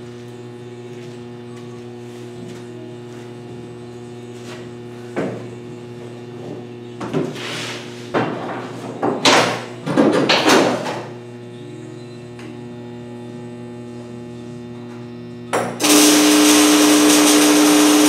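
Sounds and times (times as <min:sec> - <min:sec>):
electrical hum: 0:00.0 - 0:18.0
welding arc hissing: 0:15.8 - 0:18.0.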